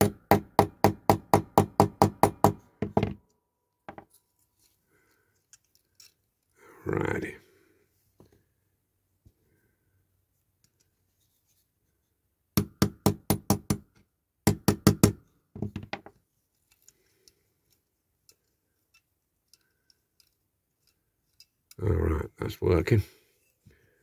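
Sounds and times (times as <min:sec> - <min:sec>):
faint handling ticks: 0:16.5 - 0:22.6.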